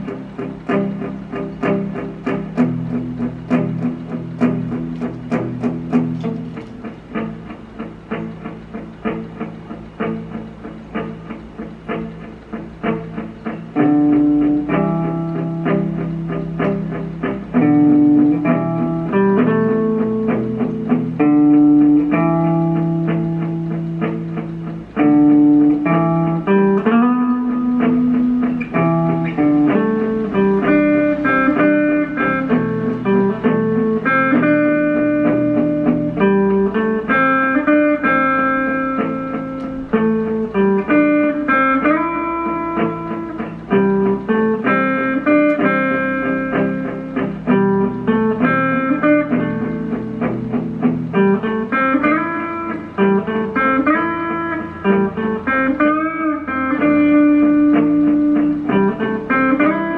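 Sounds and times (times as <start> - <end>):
electric guitar melody: 0.0 - 59.9.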